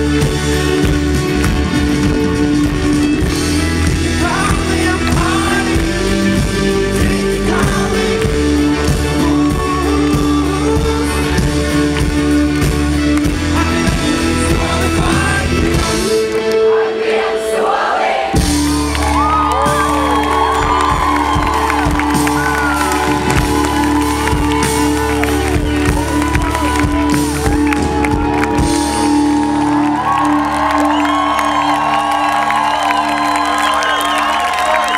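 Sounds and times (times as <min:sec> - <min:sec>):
rock band playing live: 0:00.0 - 0:34.9
man singing lead: 0:03.4 - 0:12.4, 0:13.3 - 0:18.2.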